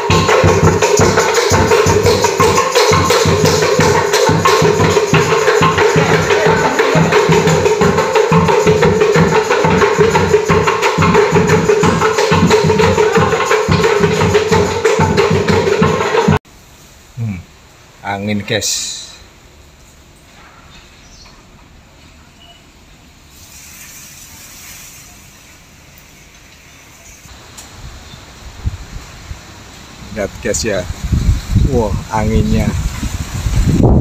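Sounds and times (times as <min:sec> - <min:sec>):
drums beaten in fast beat: 0:00.0 - 0:16.4.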